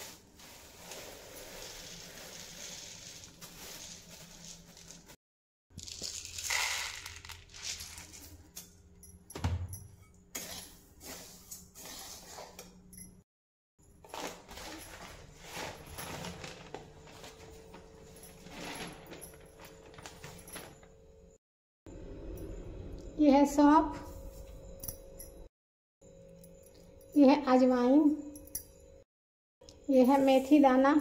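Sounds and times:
plastic and paper rustling: 0.0 - 5.2, 14.1 - 20.9
seeds rattling in a pan: 0.4 - 5.2, 5.8 - 8.2.

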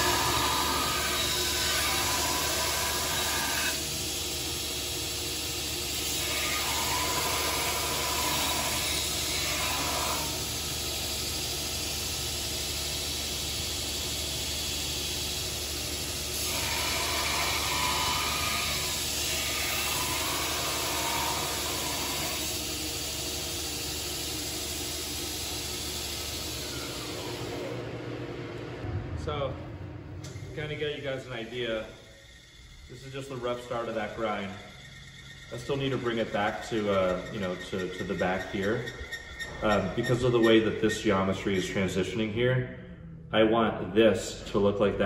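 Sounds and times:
steel grinding on belt: 0.0 - 4.9, 5.6 - 11.0, 15.3 - 23.7, 31.1 - 41.7
belt grinder motor hum: 0.0 - 11.2, 13.4 - 27.8.

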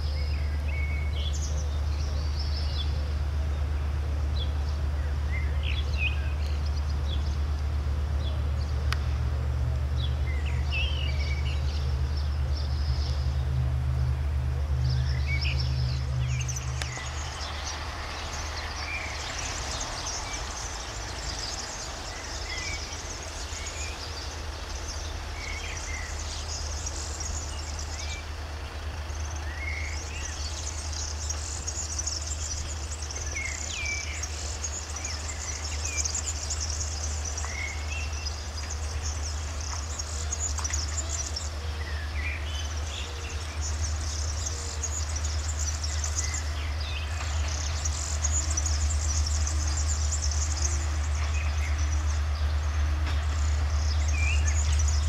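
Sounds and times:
continuous insect buzz: 0.0 - 55.0
bird chirps: 14.7 - 55.0.

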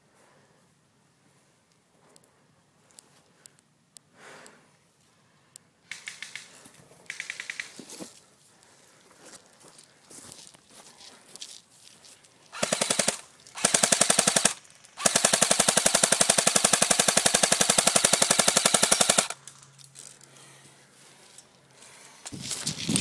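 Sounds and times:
airsoft rifle firing bursts: 5.9 - 7.8, 12.5 - 19.4.

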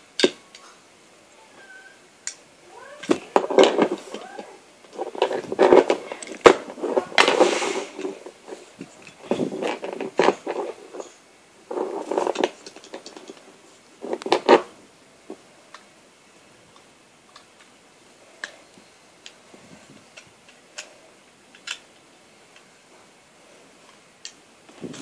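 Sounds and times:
plastic bricks clicking and rattling: 3.0 - 11.1, 11.7 - 13.4, 21.5 - 21.9.

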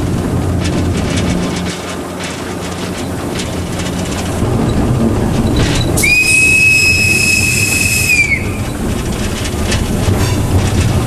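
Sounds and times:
diesel engine running: 0.0 - 11.0
train wheels rumbling: 0.0 - 11.0
locomotive whistle blast: 6.0 - 8.8.

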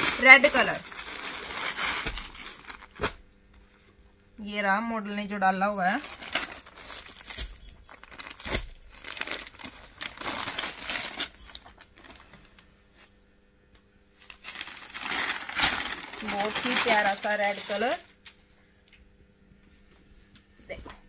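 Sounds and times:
hands rustling items: 0.0 - 3.8, 5.8 - 12.6, 14.2 - 18.0.

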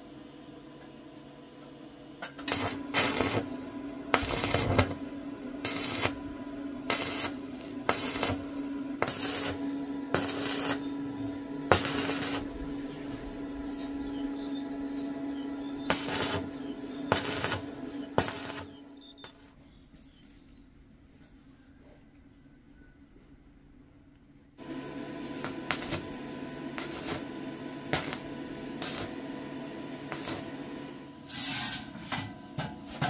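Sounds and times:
steady hum: 0.0 - 19.7, 23.0 - 33.0
welding arc crackling: 2.2 - 19.6, 24.6 - 31.5.

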